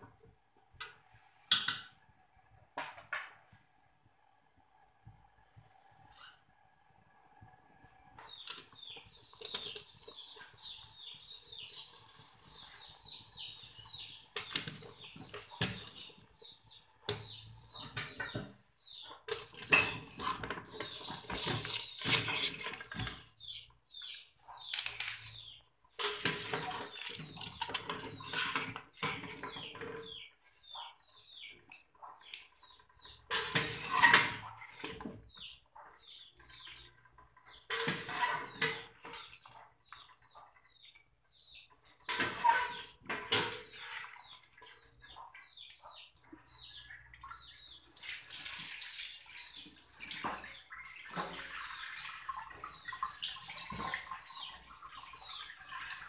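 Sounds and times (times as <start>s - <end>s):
small birds chirping: 8.2s - 56.0s
metal skimmer scraping steel pot: 8.3s - 23.6s, 24.6s - 30.2s, 33.0s - 35.2s, 37.5s - 39.3s
water splashing and dripping: 46.3s - 56.0s.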